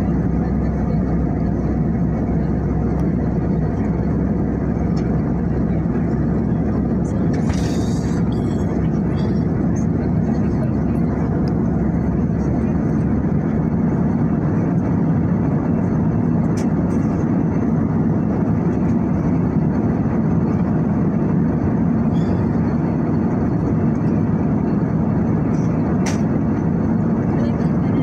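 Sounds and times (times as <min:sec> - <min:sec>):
jet cabin engine and airflow noise: 0:00.0 - 0:28.0.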